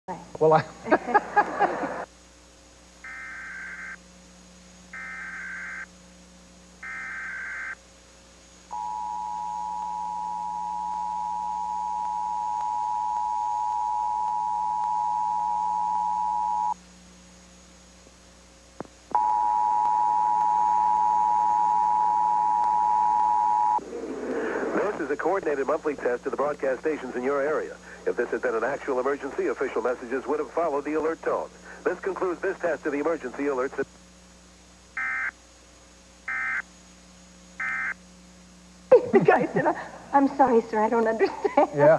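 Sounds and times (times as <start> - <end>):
two-tone attention signal: 8.8 - 16.8.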